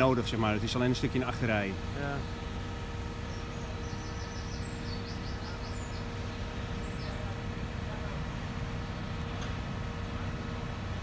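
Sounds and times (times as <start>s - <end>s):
diesel engine droning: 0.0s - 11.0s
small bird chirping: 3.3s - 7.2s.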